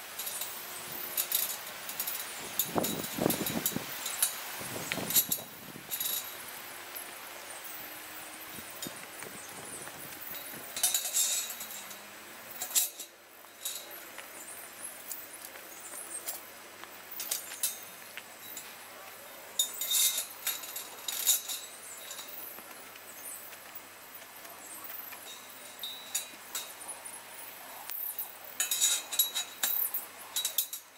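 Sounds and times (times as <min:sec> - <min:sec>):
metal panels clinking and rattling: 0:00.1 - 0:06.4, 0:10.0 - 0:14.0, 0:19.6 - 0:22.4, 0:27.9 - 0:30.9.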